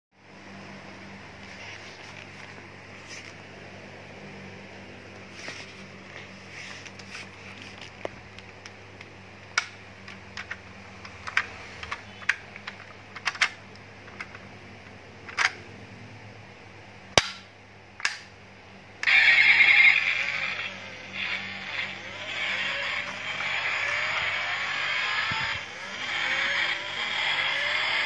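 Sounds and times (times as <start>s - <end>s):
toy car parts snapping shut: 11.3s - 13.6s, 17.2s - 18.3s
toy car raspy whirring: 19.0s - 28.0s.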